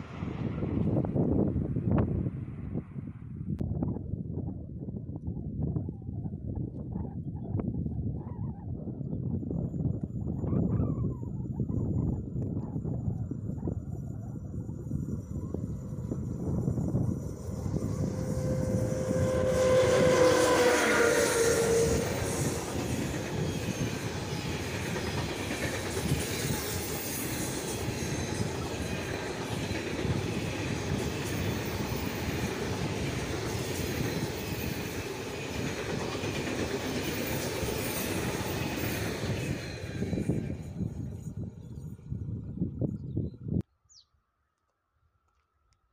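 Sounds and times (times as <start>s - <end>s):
freight wagons rumbling on rails: 14.0s - 42.0s
electric locomotive horn tone: 17.6s - 22.9s.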